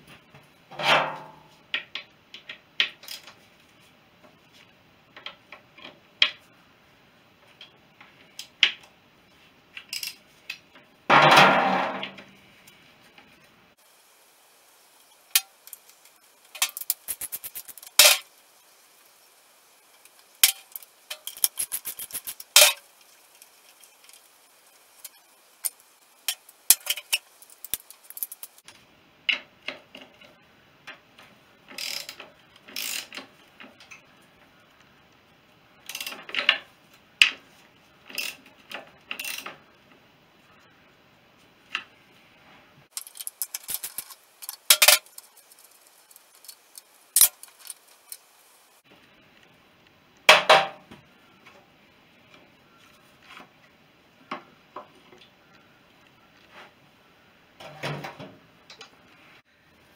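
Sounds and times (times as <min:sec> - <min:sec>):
ratchet wrench clicking: 0:16.6 - 0:18.2, 0:20.4 - 0:22.8, 0:25.0 - 0:28.6, 0:31.8 - 0:32.2, 0:32.8 - 0:33.2, 0:42.9 - 0:48.2.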